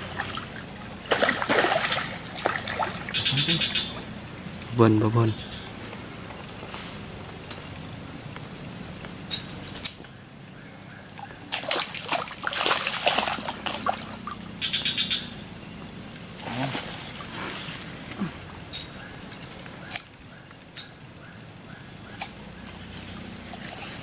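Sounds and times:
splashy rustling noise: 0.0s - 3.2s, 11.5s - 14.4s
high-pitched insect drone: 0.0s - 24.0s.

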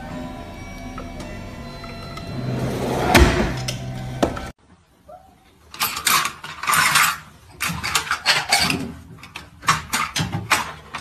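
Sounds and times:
dishes and utensils clattering: 5.7s - 11.0s.

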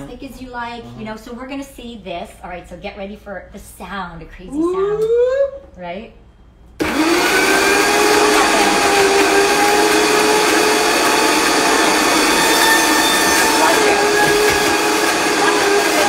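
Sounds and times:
blender motor whining: 6.8s - 16.0s.

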